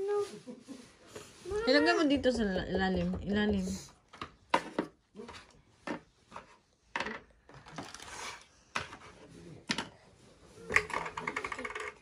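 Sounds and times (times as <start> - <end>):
plastic tubs clicking together: 10.7 - 12.0.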